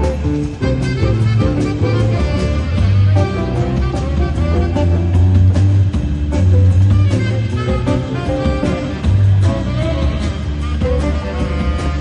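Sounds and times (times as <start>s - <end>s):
jazz combo playing swing: 0.0s - 12.0s.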